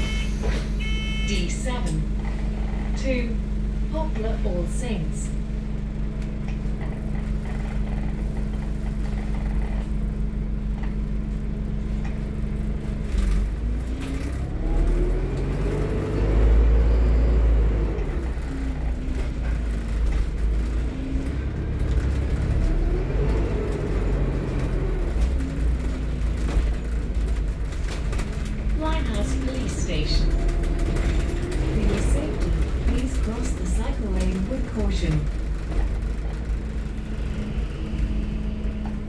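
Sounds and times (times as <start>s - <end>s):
bus diesel engine: 0.0s - 39.0s.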